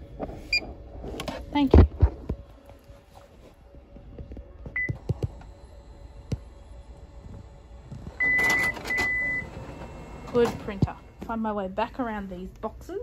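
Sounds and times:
printer hum: 2.4s - 11.8s
printer mechanical noise: 4.4s - 11.6s
printer high beep: 8.1s - 10.9s.

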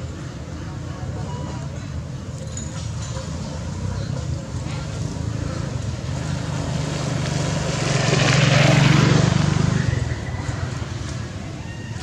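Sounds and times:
vehicle passing by: 3.4s - 11.5s.

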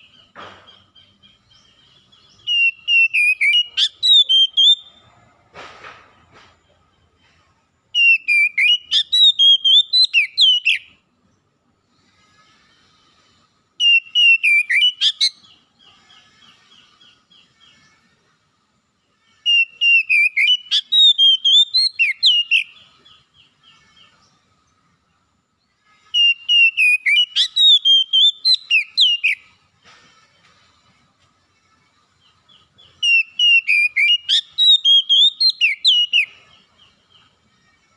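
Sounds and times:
bird singing whistled notes: 0.0s - 5.0s, 7.9s - 11.0s, 13.8s - 18.1s, 19.4s - 24.8s, 26.0s - 29.7s, 32.0s - 37.9s.

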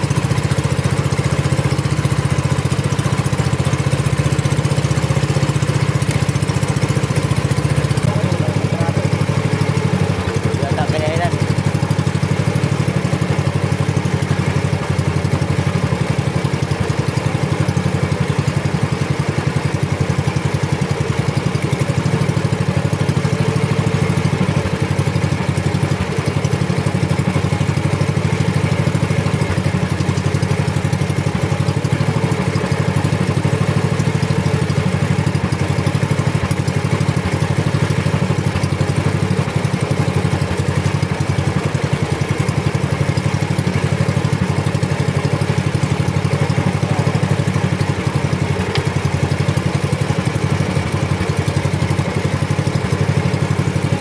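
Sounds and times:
boat engine droning: 0.0s - 54.0s.

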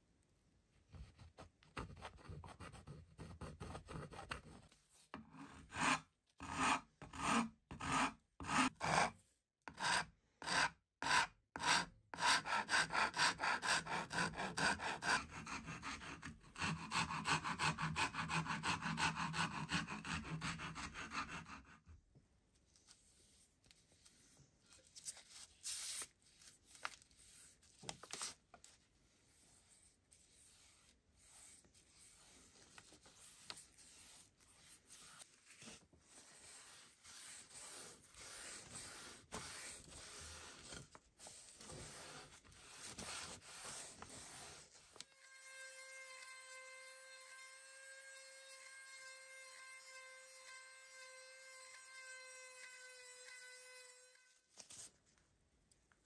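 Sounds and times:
pencil scratching on wood: 0.9s - 22.0s, 29.3s - 45.1s
file stroking wood: 5.2s - 21.9s, 29.4s - 45.1s.

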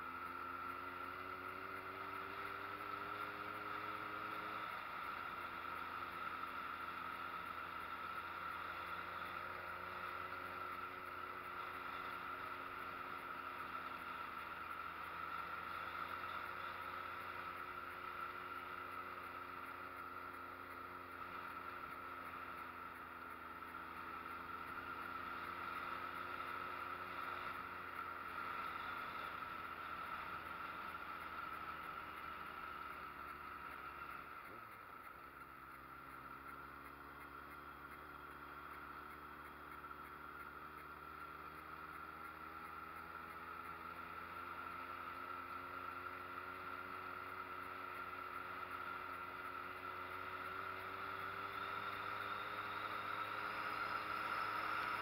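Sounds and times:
motorcycle engine running: 0.0s - 55.0s
wind and road noise: 0.0s - 55.0s.

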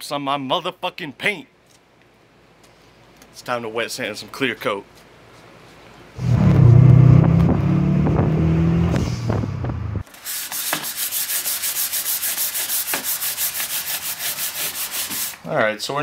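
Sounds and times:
loud low drone: 6.2s - 10.0s
hand sanding with sandpaper: 10.1s - 15.4s.

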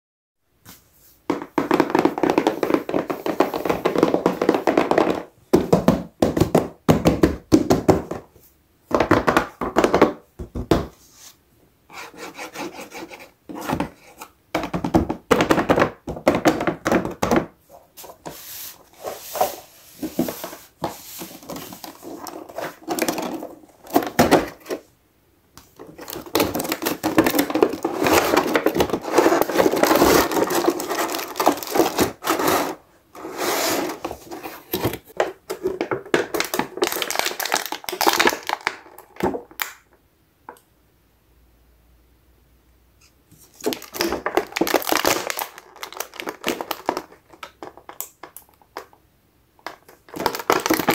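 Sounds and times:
hands handling cardboard box: 12.0s - 24.8s, 25.6s - 39.5s.

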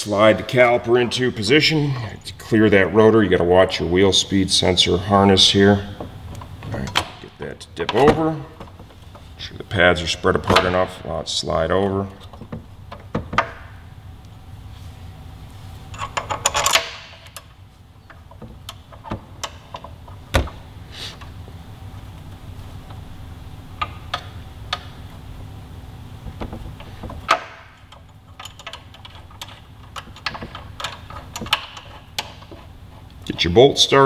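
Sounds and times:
metal clicks and knocks: 11.8s - 13.8s, 15.9s - 20.6s, 23.8s - 25.1s, 26.2s - 32.7s.

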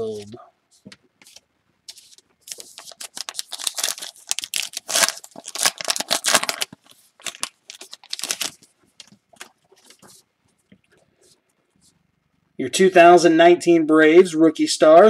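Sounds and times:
paper wrapper tearing and crinkling: 2.4s - 10.0s.

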